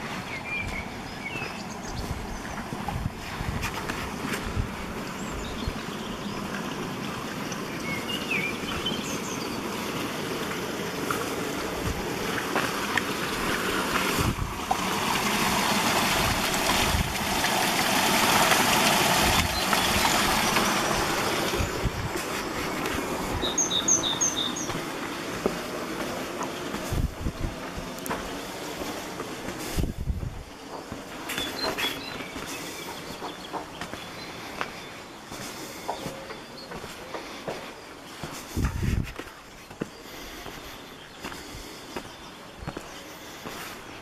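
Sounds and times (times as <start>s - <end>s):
water rushing from culvert: 0.0s - 44.0s
small bird chirping: 7.5s - 9.7s, 21.6s - 24.8s, 31.3s - 35.0s.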